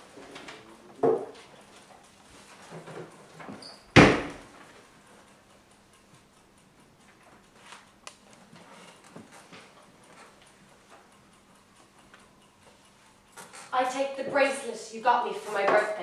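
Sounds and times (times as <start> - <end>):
door slamming shut: 4.0 - 4.4.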